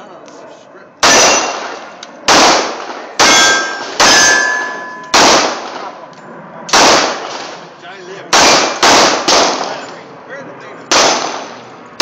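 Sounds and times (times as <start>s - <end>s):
steel target ringing: 1.0s - 1.7s, 3.2s - 5.2s
pistol shots: 1.0s - 6.0s, 6.7s - 7.6s, 8.3s - 9.9s, 10.9s - 11.6s.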